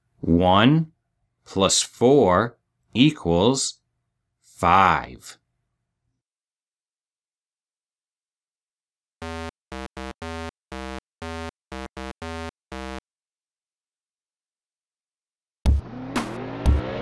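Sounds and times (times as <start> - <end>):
eight-bit synthesizer jingle: 9.2 - 13.0.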